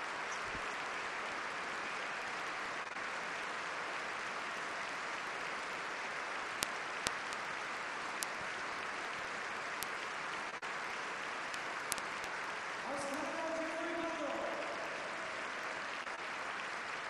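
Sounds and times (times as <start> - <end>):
sharp high ticks: 11.5 - 12.4
audience applauding: 12.8 - 16.3.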